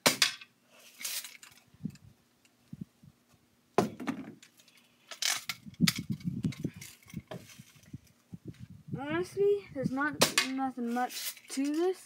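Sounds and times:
fishing line rustling scrapes: 0.7 - 1.7, 4.5 - 8.2, 10.8 - 12.0.

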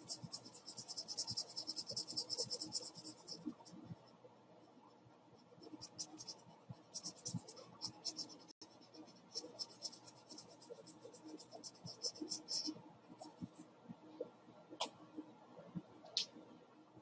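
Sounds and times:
marker scratching on paper: 0.0 - 3.6, 5.6 - 13.6.

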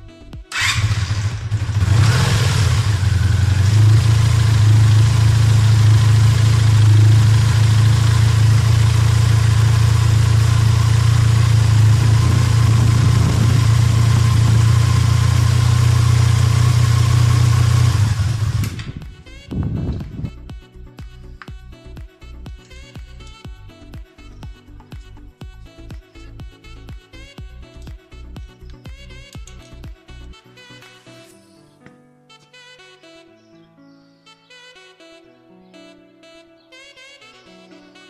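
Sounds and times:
motorcycle engine idling: 0.3 - 20.3.

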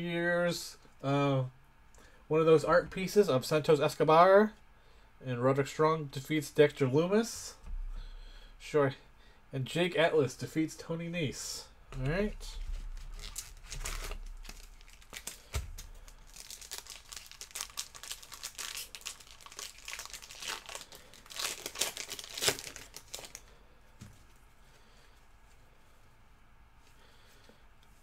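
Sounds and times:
foil wrapper crinkling and tearing: 12.4 - 23.5.

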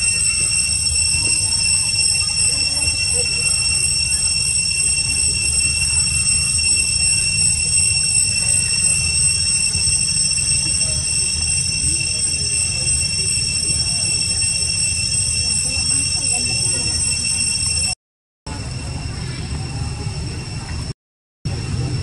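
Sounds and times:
insects droning chorus: 0.0 - 17.9.

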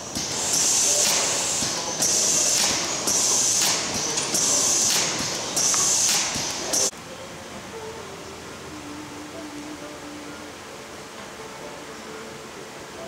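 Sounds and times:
compressed air hissing bursts: 0.0 - 6.9
conveyor machinery running: 0.0 - 13.0.

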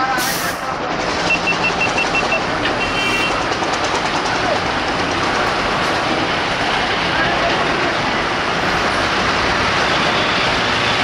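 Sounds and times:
passing vehicles rumbling: 0.0 - 11.0
high beeps: 1.3 - 3.0.

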